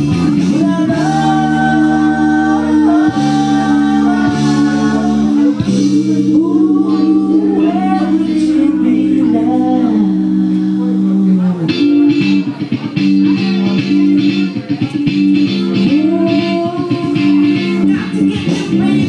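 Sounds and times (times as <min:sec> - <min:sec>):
woman singing into a microphone: 0:00.0 - 0:11.8, 0:15.8 - 0:19.0
loud backing music: 0:00.0 - 0:19.0.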